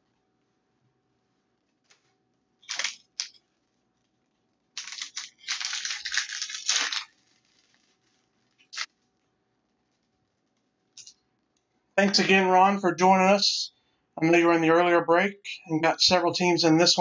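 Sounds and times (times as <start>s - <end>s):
foil wrapper crinkling and tearing: 2.6s - 3.4s, 4.7s - 8.9s.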